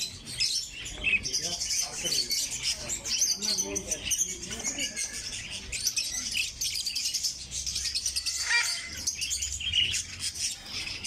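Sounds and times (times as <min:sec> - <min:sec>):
birds chirping and twittering: 0:00.0 - 0:11.0
loud bird call: 0:07.1 - 0:11.0.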